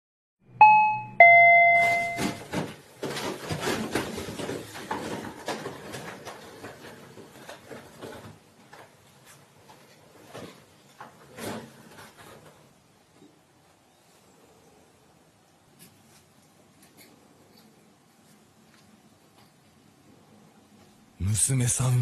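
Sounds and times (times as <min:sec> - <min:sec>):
intercom two-tone chime: 0:00.6 - 0:02.4.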